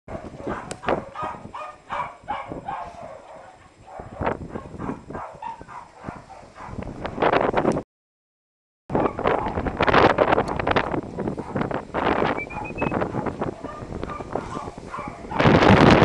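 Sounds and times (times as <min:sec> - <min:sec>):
dogs barking: 0:00.1 - 0:06.9, 0:08.9 - 0:09.6, 0:11.3 - 0:11.7, 0:12.4 - 0:15.8
wind on microphone: 0:00.1 - 0:07.8, 0:08.9 - 0:16.0.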